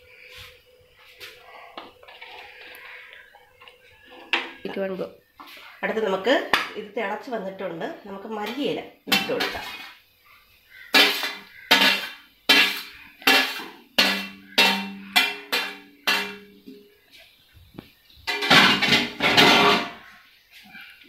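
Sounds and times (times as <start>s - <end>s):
metal clatter: 11.0s - 16.5s, 18.3s - 20.0s
spoon knocking on steel plate: 11.0s - 16.6s.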